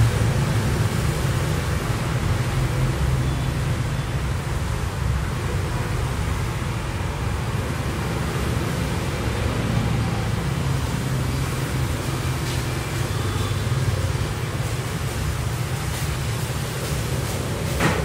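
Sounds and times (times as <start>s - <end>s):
cars passing: 0.0s - 18.0s
low hum of engines and tyres: 0.0s - 18.0s
motor scooters passing: 7.3s - 18.0s.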